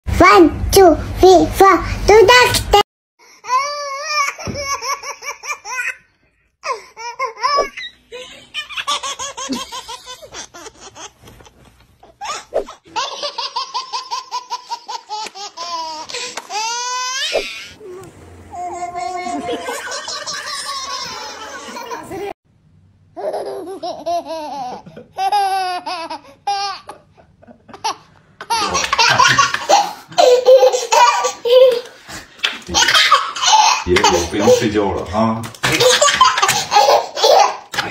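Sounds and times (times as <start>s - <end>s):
baby laughing: 3.5s - 6.1s, 6.7s - 17.8s, 18.5s - 22.3s, 23.2s - 34.8s, 35.6s - 37.9s.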